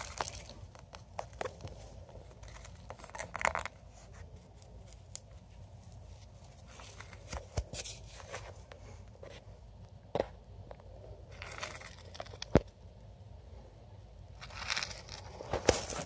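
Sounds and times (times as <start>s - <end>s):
rodent digging in bedding: 0.0s - 9.4s, 11.2s - 12.5s, 14.4s - 16.0s.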